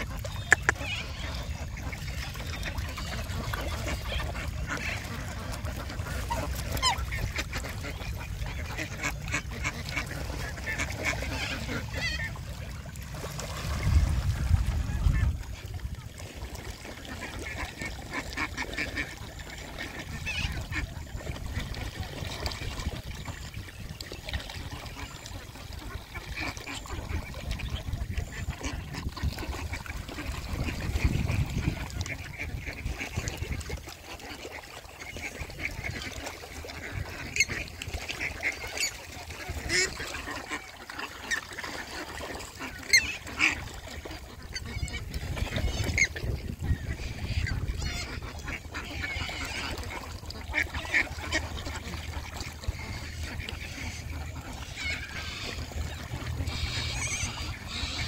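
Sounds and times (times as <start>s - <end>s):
duck calls: 0.0s - 12.4s, 35.0s - 58.0s
geese honking: 0.0s - 12.4s, 35.4s - 58.0s.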